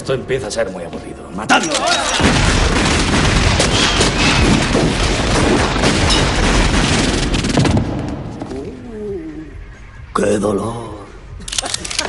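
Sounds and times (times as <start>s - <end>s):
many guns firing: 2.1s - 8.4s.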